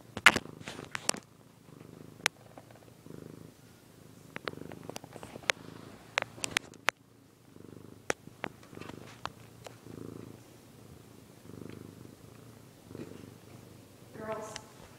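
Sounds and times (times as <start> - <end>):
cat purring: 0.0 - 14.9
sharp clicks: 6.2 - 7.0.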